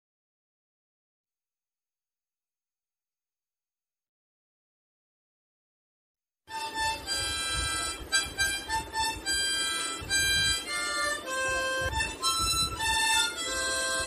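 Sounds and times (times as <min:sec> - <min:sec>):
harmonica melody: 0:06.5 - 0:14.0.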